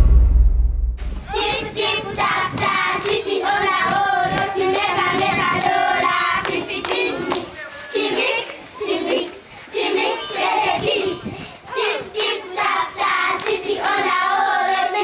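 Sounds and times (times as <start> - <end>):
children singing together: 1.2 - 15.0
hand claps: 12.2 - 14.9.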